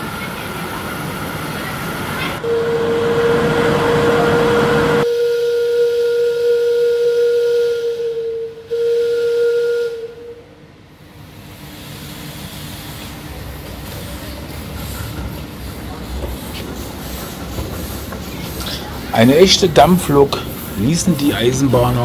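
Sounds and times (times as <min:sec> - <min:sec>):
steam whistle long note: 0:02.4 - 0:10.6
steam hissing: 0:11.0 - 0:22.0.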